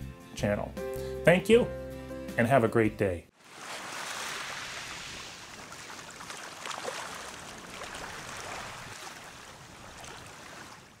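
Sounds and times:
ocean surf: 3.4 - 11.0.

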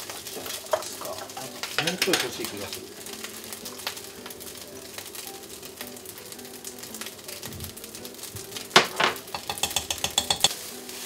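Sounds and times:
spatula stirring rice in a pan: 0.0 - 3.1, 9.2 - 11.0
low sizzle: 0.0 - 11.0
loud knocks on a pan: 8.8 - 10.5.

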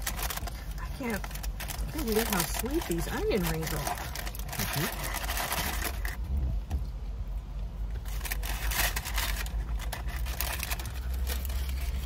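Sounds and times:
paper wrappers crackling: 0.0 - 6.2, 8.0 - 12.0
car cabin rumble: 0.0 - 12.0.

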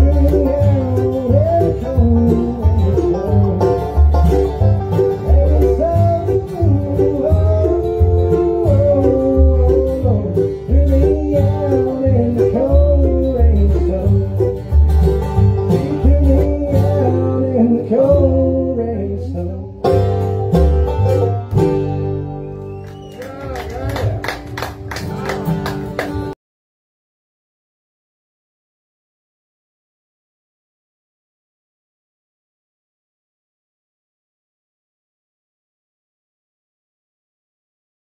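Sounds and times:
banjo rolls: 0.0 - 22.8, 23.4 - 26.4
bluegrass band playing: 0.0 - 26.4.

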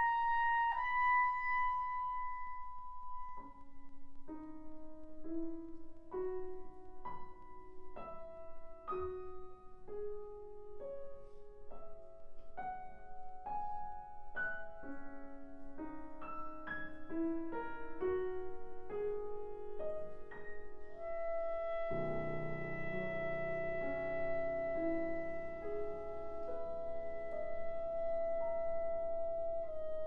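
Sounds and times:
grand piano single notes: 0.0 - 30.0
clarinet held note: 21.0 - 30.0.

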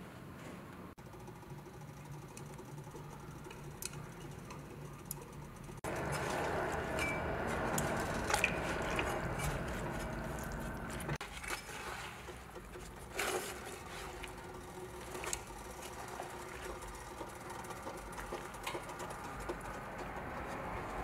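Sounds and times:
steady low hum: 1.0 - 11.2.

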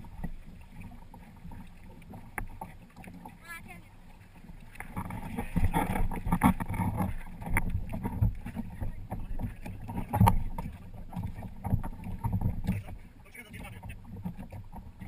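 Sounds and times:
water splashing against hull: 0.0 - 15.0
wind buffeting microphone: 0.0 - 15.0
knocks on boat: 4.8 - 15.0.

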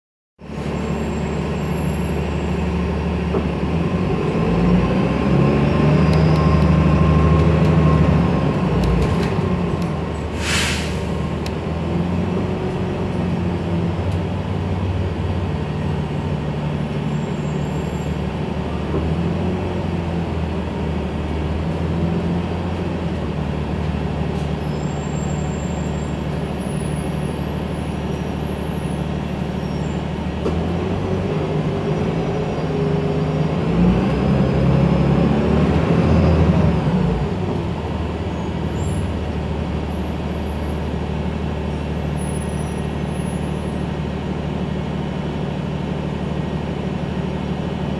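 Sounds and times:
bus engine running: 0.4 - 47.9
air hiss: 10.3 - 11.1.

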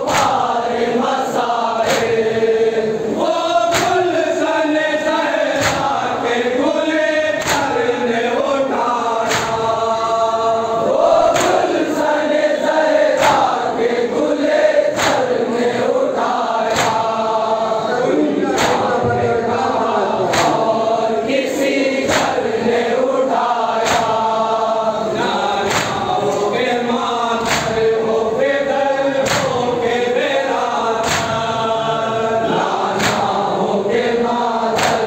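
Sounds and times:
hands slapping chests: 0.0 - 0.5, 1.8 - 2.3, 3.7 - 4.2, 5.5 - 6.0, 7.4 - 7.8, 9.2 - 9.8, 11.3 - 11.8, 13.1 - 13.6, 14.9 - 15.4, 16.7 - 17.2, 18.5 - 19.0, 20.3 - 20.7, 22.1 - 22.4, 23.8 - 24.2, 25.6 - 26.6, 27.4 - 27.9, 29.2 - 29.6, 31.0 - 31.6, 32.8 - 33.5, 34.7 - 35.0
lead reciter on a microphone: 0.0 - 35.0
men chanting in unison: 0.0 - 35.0.

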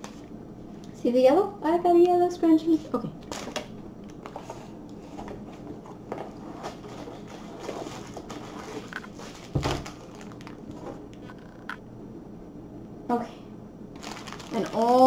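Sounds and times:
bag thumping onto wooden table: 9.5 - 10.0.

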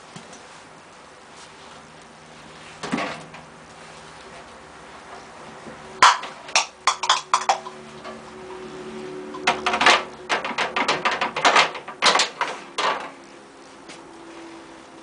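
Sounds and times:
clothes knocking in dryer drum: 6.0 - 8.2, 9.3 - 13.2.

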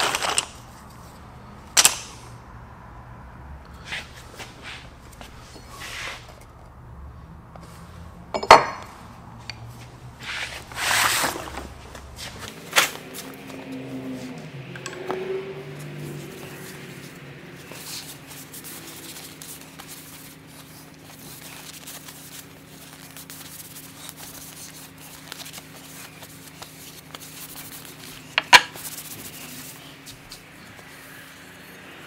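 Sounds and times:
sanding wood rubbing and scratching: 10.2 - 11.6, 15.8 - 32.0.

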